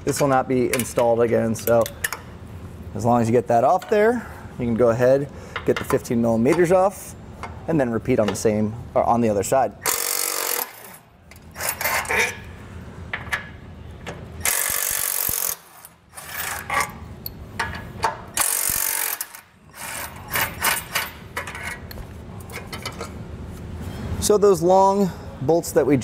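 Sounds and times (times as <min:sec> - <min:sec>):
clatter of bolts being handled: 0:13.1 - 0:23.2
cordless impact driver: 0:18.4 - 0:19.4.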